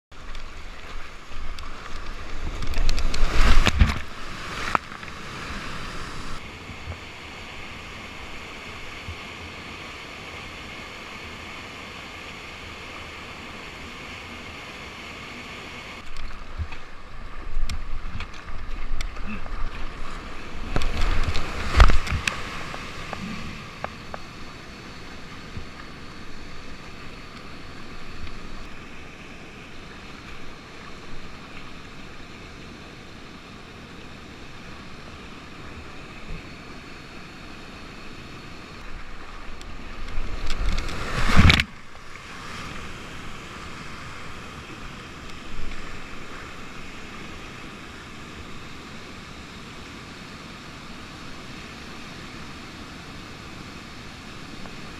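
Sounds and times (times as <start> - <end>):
rushing whitewater: 0.1 - 54.9
kayak splashing into water: 40.2 - 42.3.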